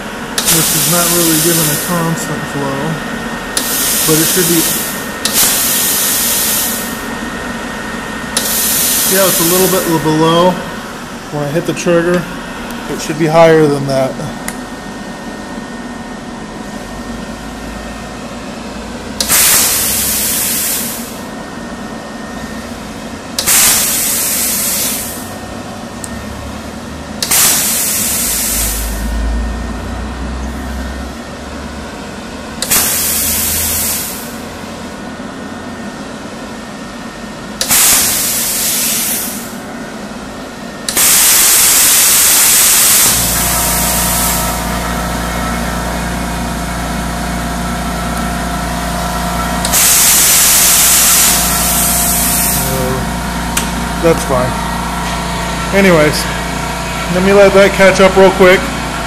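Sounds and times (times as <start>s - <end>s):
compressed air hissing bursts: 0.0s - 2.2s, 3.5s - 7.1s, 8.3s - 10.2s, 19.2s - 21.3s, 23.4s - 25.4s, 27.2s - 29.1s, 32.6s - 34.5s, 37.6s - 39.6s, 40.9s - 44.7s, 49.6s - 54.3s
steady hiss of flowing air: 0.0s - 2.4s, 3.6s - 7.2s, 8.3s - 11.9s, 19.2s - 21.4s, 23.4s - 25.3s, 27.3s - 29.0s, 32.7s - 34.5s, 37.7s - 40.1s, 40.9s - 44.6s, 49.6s - 54.5s
air compressor humming: 0.0s - 59.0s.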